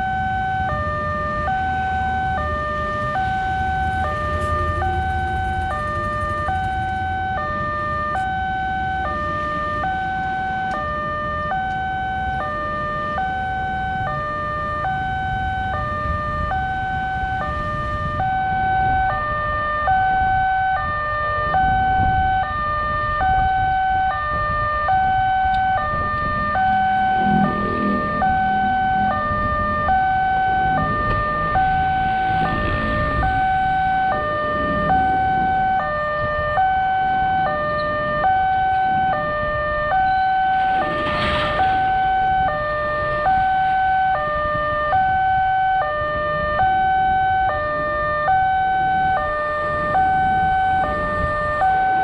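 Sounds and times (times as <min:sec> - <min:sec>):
level crossing two-tone alarm: 0:00.0 - 0:52.0
low rumble: 0:25.2 - 0:45.3.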